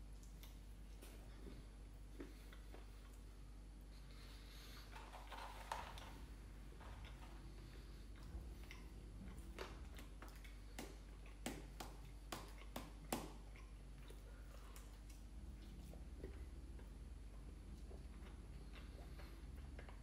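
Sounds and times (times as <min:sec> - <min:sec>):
crunchy chewing: 0:04.0 - 0:20.0.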